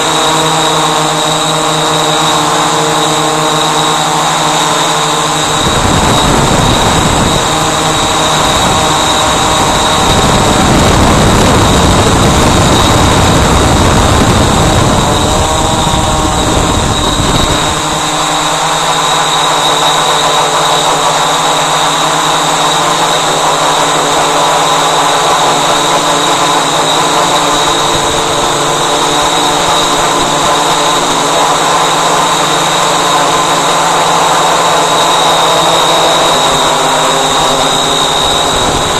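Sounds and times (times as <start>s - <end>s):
drone motors and propellers whining: 0.0s - 38.9s
wind buffeting microphone: 5.0s - 18.8s, 24.2s - 38.9s.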